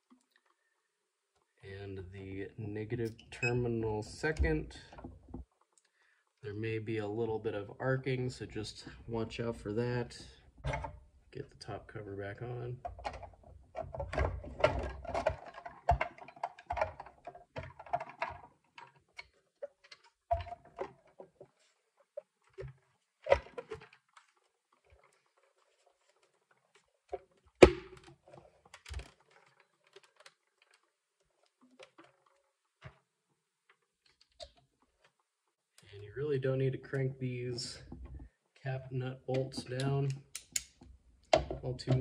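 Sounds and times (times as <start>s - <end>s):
plastic cover clicking and rattling: 12.8s - 21.6s, 22.2s - 33.0s.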